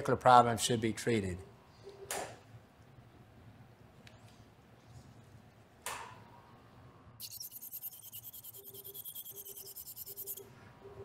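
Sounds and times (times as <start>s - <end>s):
rapidly pulsing electronic tone: 7.2s - 10.5s.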